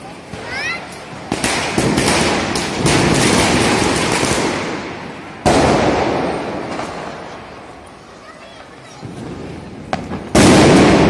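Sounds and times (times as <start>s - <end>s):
fireworks crackling bangs: 0.0s - 11.0s
loud echoing firework bang: 1.3s - 7.4s, 9.0s - 11.0s.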